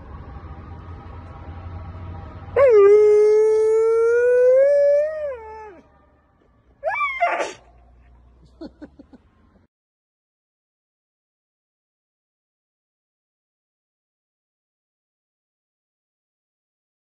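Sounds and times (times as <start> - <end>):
dog howling: 2.6 - 5.9, 6.8 - 7.6.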